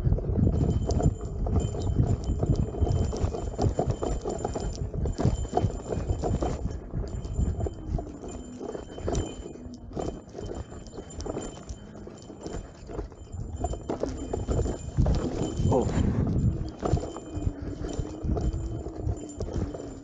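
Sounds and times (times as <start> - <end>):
wheel knocking and rattling over bumps: 0.0 - 20.0
low rumble: 14.8 - 16.8.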